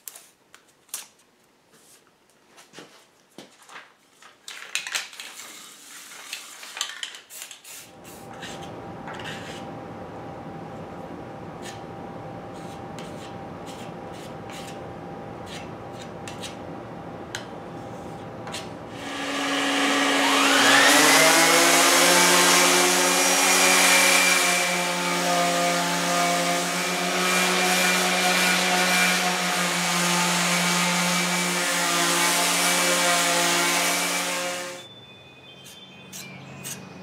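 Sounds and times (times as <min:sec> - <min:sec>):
shop vacuum running: 0:07.9 - 0:34.8
orbital sander whine: 0:18.8 - 0:31.7, 0:33.3 - 0:34.9.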